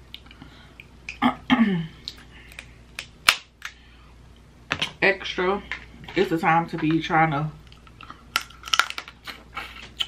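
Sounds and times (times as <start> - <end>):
crab shell cracking: 7.6 - 10.0.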